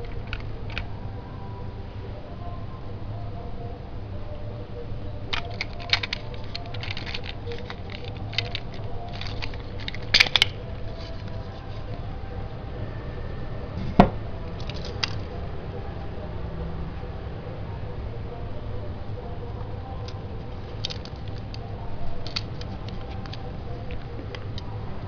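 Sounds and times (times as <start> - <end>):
toy train plastic clicks and rattles: 0.0 - 0.9, 5.3 - 12.0, 14.6 - 15.3, 20.0 - 24.7.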